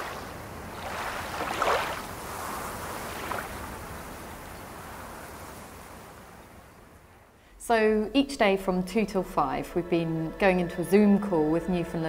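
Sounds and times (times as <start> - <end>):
sea waves washing: 0.0 - 7.1.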